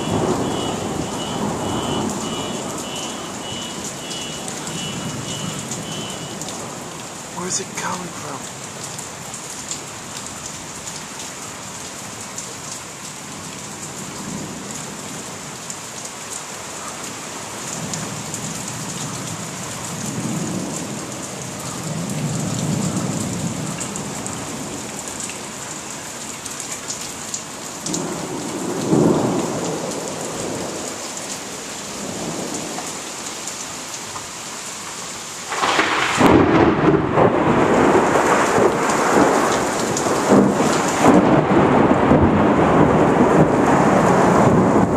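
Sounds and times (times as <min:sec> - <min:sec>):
close thunderclap: 0:00.0 - 0:04.0, 0:27.9 - 0:30.8, 0:35.5 - 0:44.9
thunder rumbling: 0:00.0 - 0:06.8, 0:27.9 - 0:30.8, 0:35.5 - 0:44.9
heavy rain: 0:00.0 - 0:44.9.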